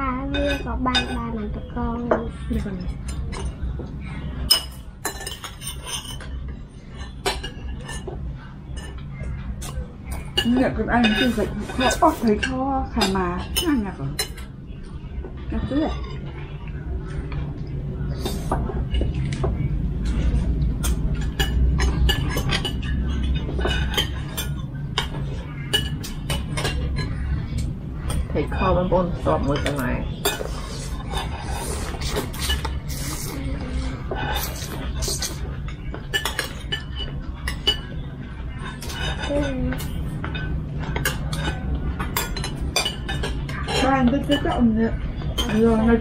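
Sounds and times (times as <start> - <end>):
low steady hum: 0.0 - 46.0
cutlery and dishes clinking: 2.9 - 3.8, 4.4 - 14.5, 15.6 - 46.0.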